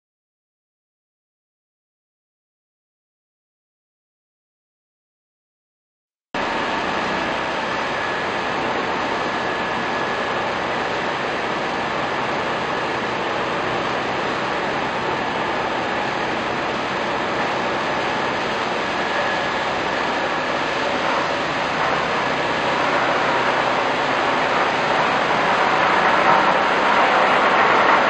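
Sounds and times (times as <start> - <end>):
faint high whine: 6.4 - 28.0
machine mechanical din: 14.9 - 28.0.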